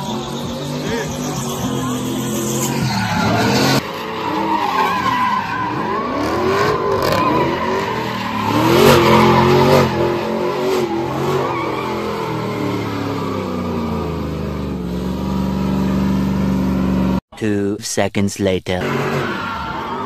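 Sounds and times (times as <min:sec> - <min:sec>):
tyres squealing: 0:00.0 - 0:15.8
truck engine revving: 0:00.0 - 0:17.2, 0:18.8 - 0:20.0.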